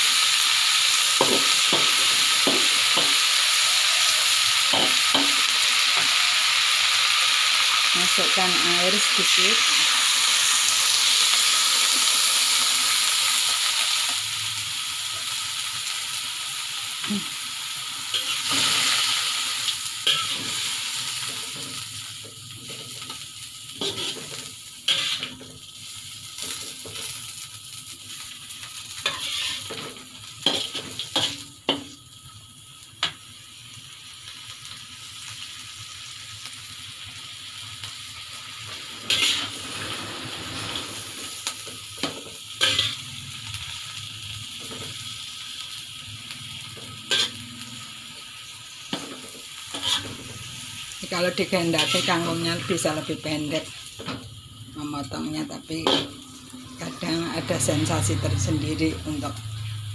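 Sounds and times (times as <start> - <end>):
greens sizzling in wok: 0.0 - 59.9
metal spatula scraping wok: 18.1 - 25.6, 28.9 - 31.9, 38.4 - 43.7, 46.7 - 47.9, 48.9 - 54.2, 54.8 - 59.8.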